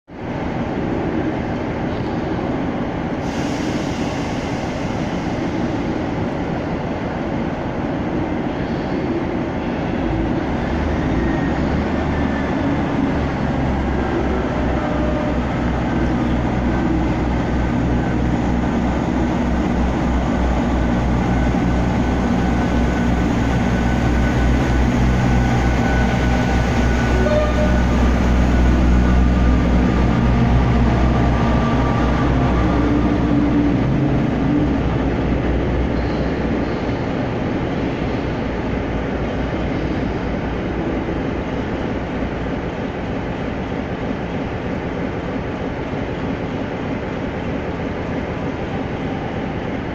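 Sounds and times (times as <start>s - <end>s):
diesel train engines droning: 0.2s - 49.9s.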